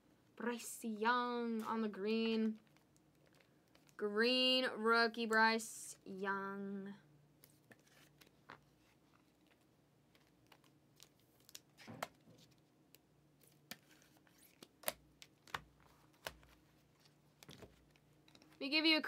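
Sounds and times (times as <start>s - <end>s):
trading cards sliding into sleeves: 7.4s - 9.6s.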